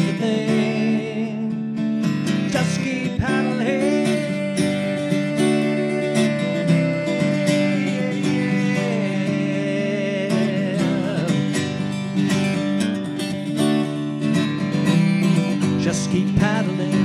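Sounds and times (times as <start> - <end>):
wordless singing: 0.0 - 1.5, 2.4 - 11.8, 15.8 - 17.0
acoustic guitar strumming: 0.0 - 17.0.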